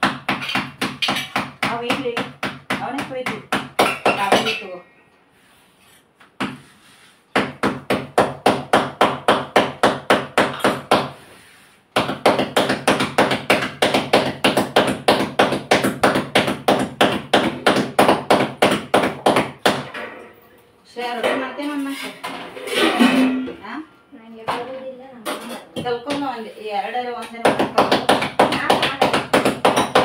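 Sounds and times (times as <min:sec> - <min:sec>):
palms patting dough: 0:00.0 - 0:04.6, 0:06.2 - 0:19.9, 0:25.8 - 0:30.0.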